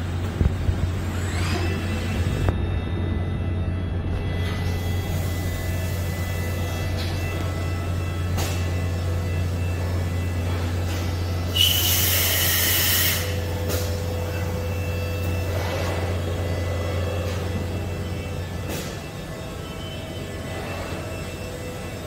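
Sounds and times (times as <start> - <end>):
machine low hum: 0.0 - 22.0
loud hiss: 11.6 - 13.4.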